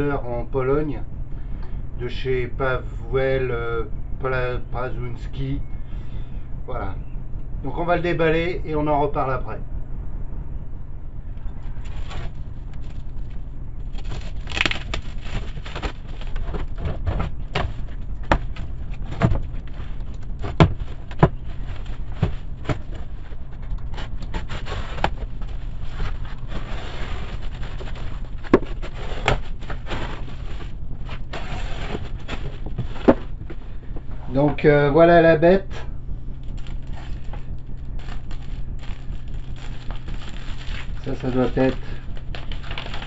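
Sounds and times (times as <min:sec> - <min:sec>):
steady low hum: 0:00.0 - 0:43.0
plastic film crinkling and tearing: 0:11.6 - 0:33.2, 0:36.4 - 0:43.0
cardboard flaps scraping open: 0:11.6 - 0:34.0, 0:36.5 - 0:43.0.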